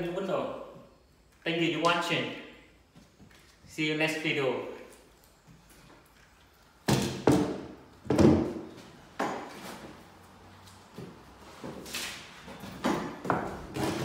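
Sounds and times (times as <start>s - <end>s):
wooden knocks and thuds on floor: 6.9s - 9.5s.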